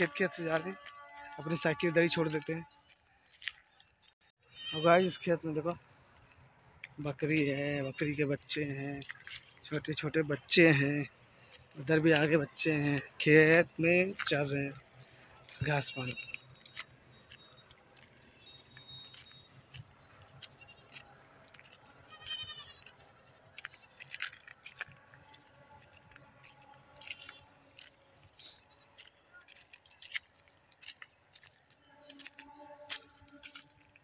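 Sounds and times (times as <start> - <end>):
footsteps on dry stubble: 0.0 - 34.0
goats bleating: 20.5 - 21.1, 22.0 - 23.8.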